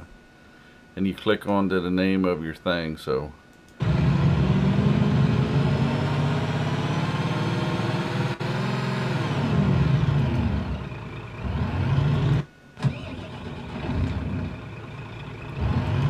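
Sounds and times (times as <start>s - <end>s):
diesel truck engine revving: 3.8s - 16.0s.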